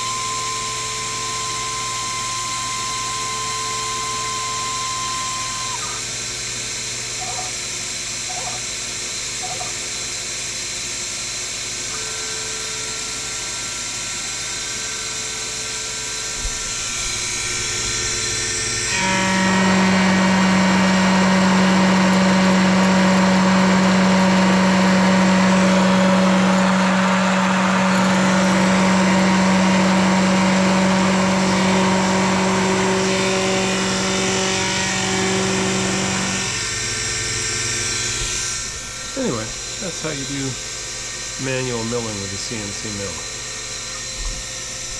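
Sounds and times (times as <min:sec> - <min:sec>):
milling machine motor whine: 0:00.0 - 0:44.9
steady hum and hiss: 0:37.5 - 0:44.9.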